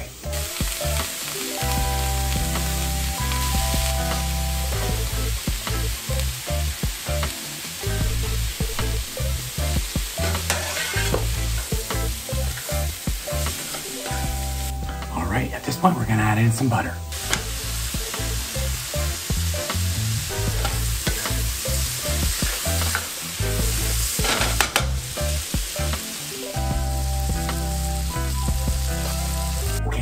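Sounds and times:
food sizzling in a pan: 0.0s - 16.2s, 17.1s - 29.8s
steady low tones: 1.6s - 7.2s, 7.8s - 10.5s, 14.1s - 25.8s.

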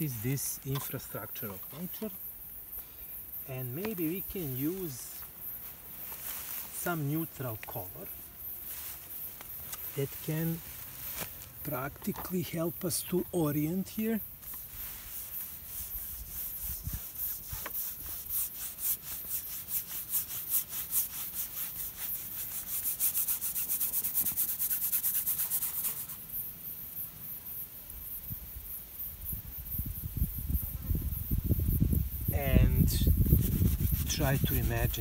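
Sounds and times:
brush scrubbing on canvas: 13.1s - 26.2s, 32.7s - 35.0s.

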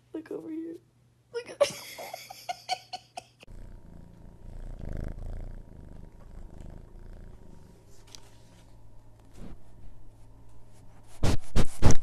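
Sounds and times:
cat purring close-up: 3.5s - 11.9s.

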